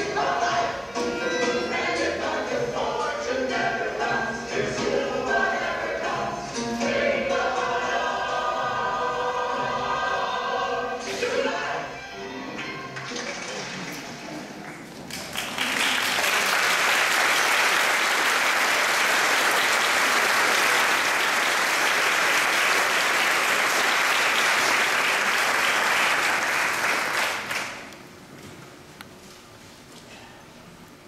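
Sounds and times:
audience applauding: 13.0s - 27.9s.

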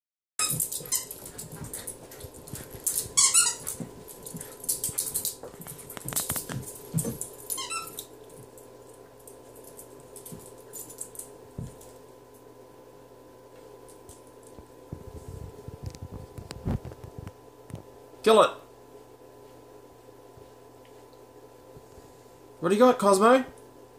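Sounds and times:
rustling and knocks: 0.4s - 7.5s
squeaky toy squeaks: 3.2s - 3.7s, 7.6s - 8.0s.

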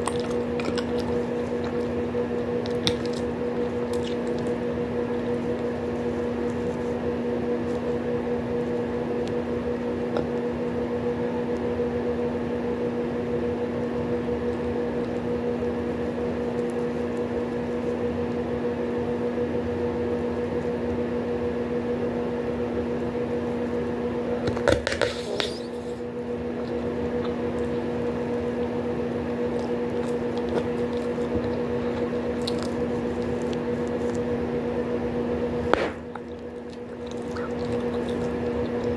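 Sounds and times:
gum chewing wet squishing: 0.0s - 8.0s, 25.4s - 28.4s, 29.2s - 35.0s, 35.6s - 38.9s
low hum: 25.5s - 38.9s
gum bubble popping: 35.8s - 38.9s.

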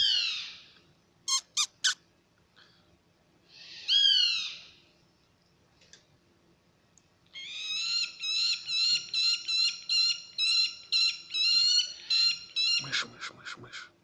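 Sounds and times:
owl chicks calling: 1.3s - 2.0s, 7.4s - 13.9s.

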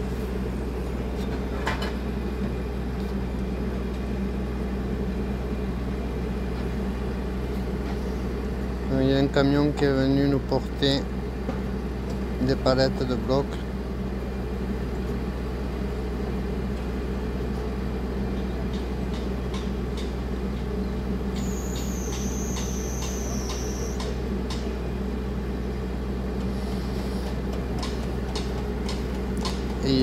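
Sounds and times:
low machine hum: 0.0s - 30.0s
thin high whine: 21.4s - 24.2s.

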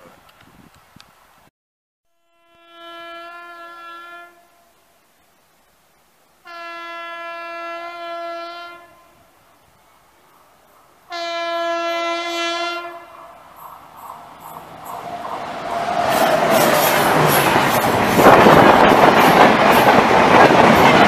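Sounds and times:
locomotive horn blasts: 2.1s - 4.7s, 6.4s - 9.3s, 11.1s - 13.1s.

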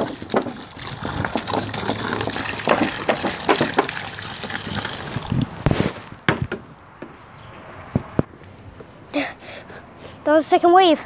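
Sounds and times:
water splashing in plastic tub: 0.0s - 6.0s.

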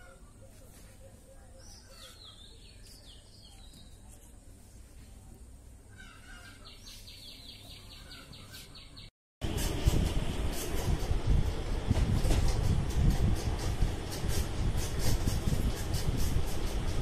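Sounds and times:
small birds chirping: 0.0s - 9.1s.

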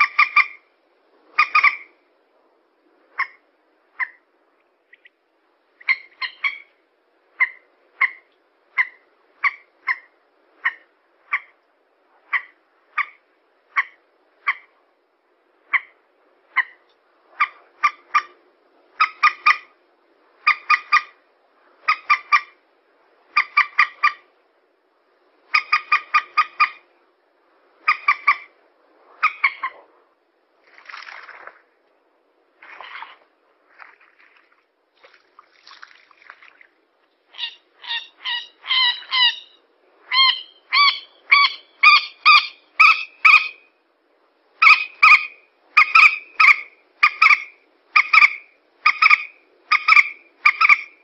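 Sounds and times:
moorhen calling: 0.0s - 0.7s, 1.3s - 2.0s, 3.2s - 4.3s, 5.8s - 11.6s, 12.2s - 14.8s, 15.6s - 19.8s, 20.4s - 21.2s, 21.8s - 22.6s, 23.3s - 24.3s, 25.4s - 26.9s, 27.8s - 28.6s, 29.2s - 29.9s, 37.3s - 43.7s, 44.6s - 51.0s.

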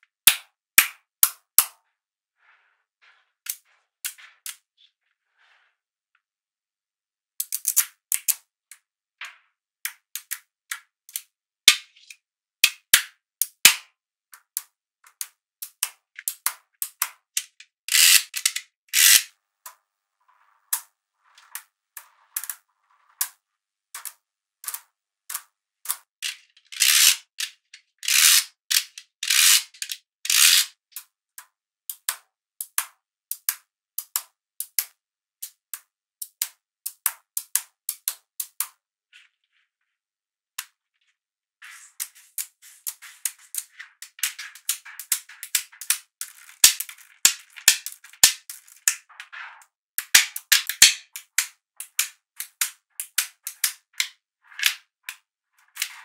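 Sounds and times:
magnetic balls snapping together: 7.4s - 8.5s, 9.9s - 13.8s, 14.4s - 19.8s, 24.0s - 38.8s, 42.0s - 49.4s, 50.0s - 55.2s.

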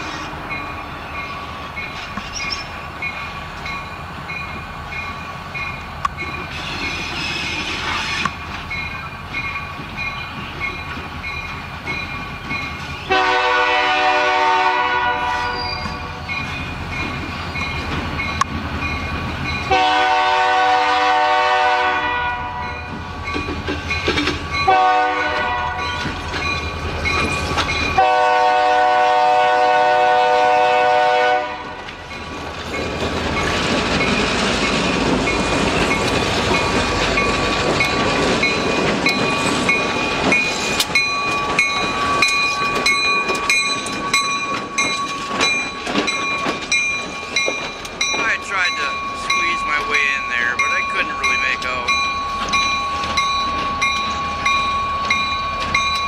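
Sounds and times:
train rumbling past: 0.0s - 56.0s
locomotive air horn blasts: 13.1s - 15.9s, 19.7s - 22.7s, 24.7s - 25.9s, 28.0s - 31.8s
wheels clicking over rails: 31.8s - 56.0s.

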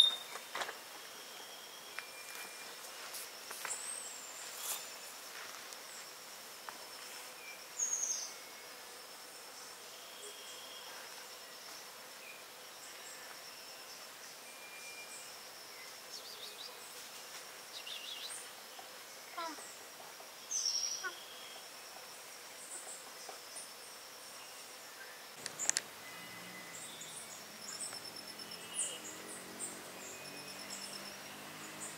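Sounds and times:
birds chirping: 0.0s - 0.5s, 25.4s - 31.9s
insect trilling: 19.3s - 19.8s, 20.5s - 21.6s.

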